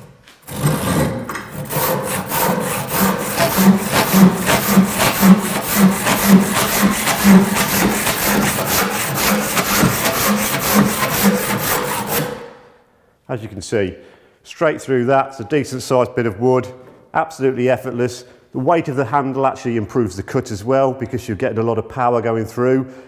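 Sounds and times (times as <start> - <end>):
handsaw cutting timber: 0.4 - 12.5.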